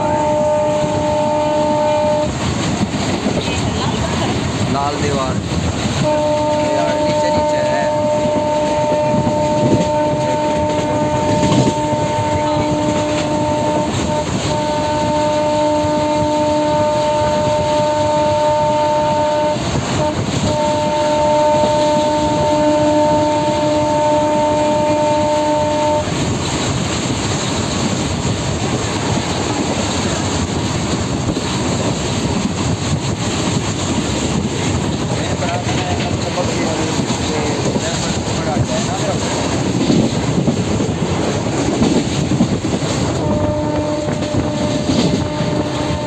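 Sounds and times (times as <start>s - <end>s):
train horn long note: 0.0s - 2.8s, 5.9s - 26.4s, 41.5s - 46.0s
train wheels rumbling on rails: 0.0s - 46.0s.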